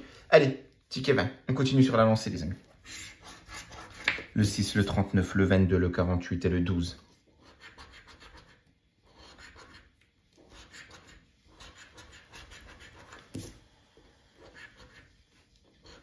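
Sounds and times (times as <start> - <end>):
coin scraping scratch card: 9.2 - 13.2.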